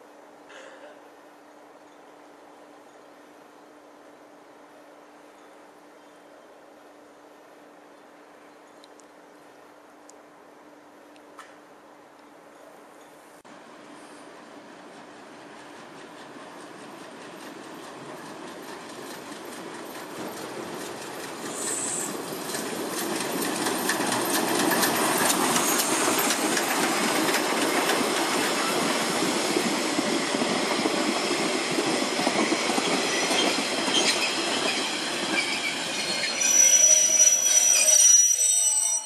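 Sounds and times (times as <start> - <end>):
train wheels clattering over rail joints: 15.5 - 36.1
high squeal: 21.5 - 22.2, 24.8 - 26.6, 32.9 - 39.0.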